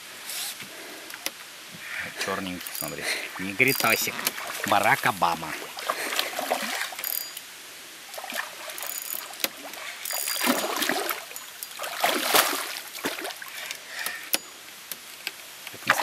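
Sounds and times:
fish thrashing water splashing: 2.6 - 7.1, 8.1 - 13.7
sharp water slaps: 8.1 - 13.5.

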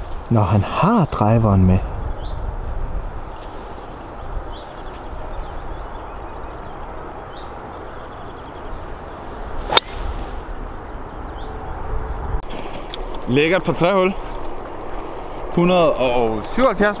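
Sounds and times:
birds chirping: 0.0 - 2.5, 3.1 - 17.0
outdoor background hiss: 0.0 - 11.8
golf club striking a ball: 9.6 - 10.4.

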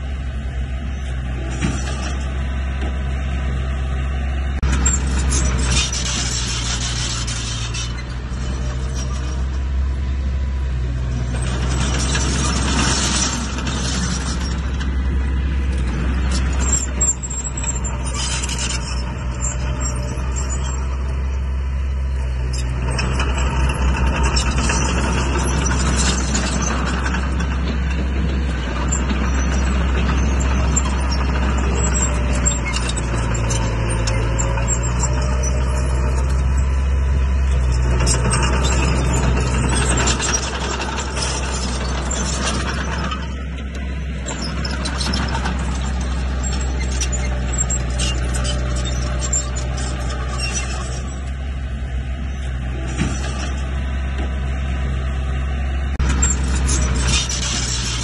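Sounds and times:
heavy diesel machinery engine drone: 0.0 - 58.0.

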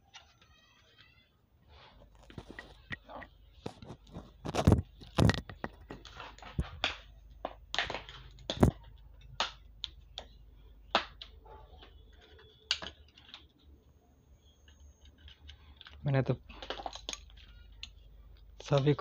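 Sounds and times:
plastic parts clicking and tapping: 2.1 - 13.8, 14.4 - 19.0.

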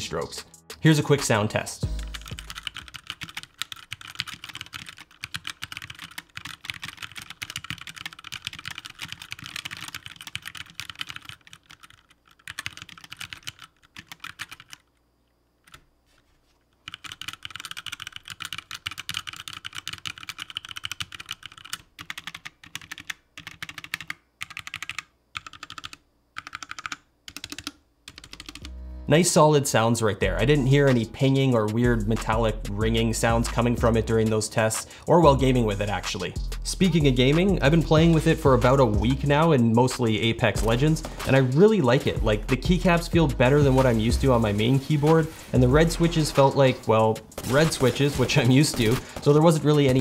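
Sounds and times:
mechanical keyboard typing: 2.0 - 14.9, 16.8 - 28.7, 38.6 - 50.0.

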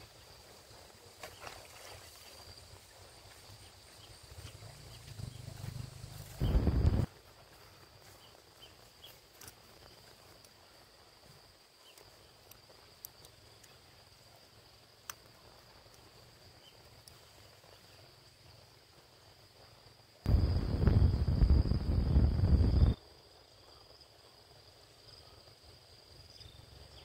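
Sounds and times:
insect trilling: 3.4 - 7.1.

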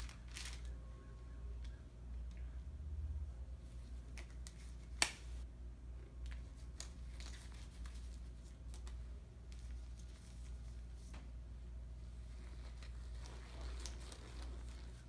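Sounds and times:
glove and paper wrapper crinkling: 0.0 - 0.8, 6.3 - 11.2, 12.0 - 15.0
rubber glove snapping: 4.1 - 5.3.

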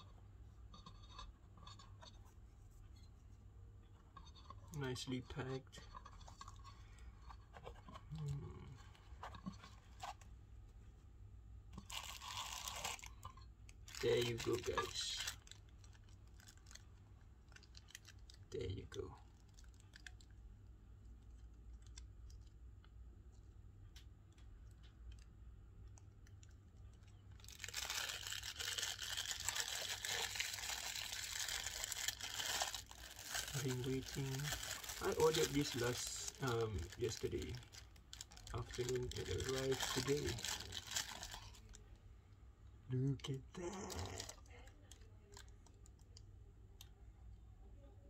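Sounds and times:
plastic bag crinkling: 11.8 - 20.3, 27.0 - 41.8.

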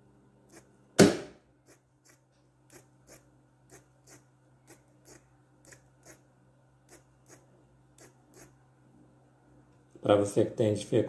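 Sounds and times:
sharp knock: 1.0 - 1.4.

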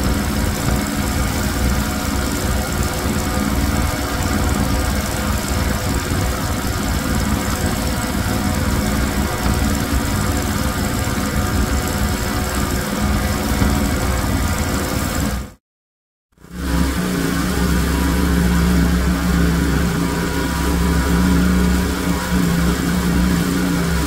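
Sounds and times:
water jet hissing: 0.0 - 15.4
small engine drone: 0.0 - 15.6, 16.4 - 24.0.

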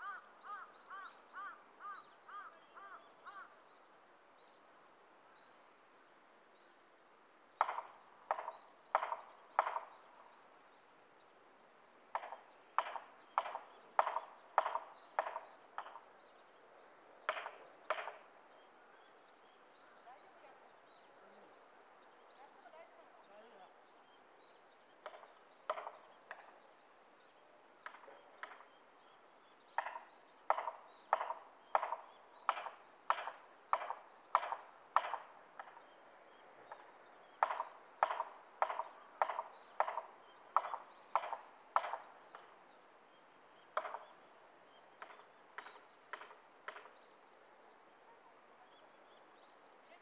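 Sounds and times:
distant hammer knocks on wedge: 7.6 - 9.9.

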